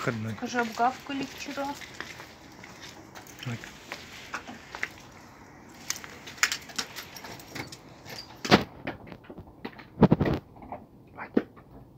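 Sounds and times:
keys jangling in lock: 0:06.4 - 0:08.5.

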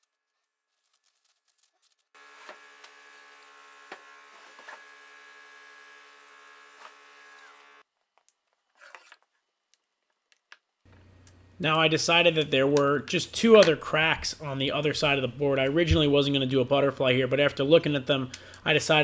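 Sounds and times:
electrical buzzing hum: 0:02.2 - 0:07.8.

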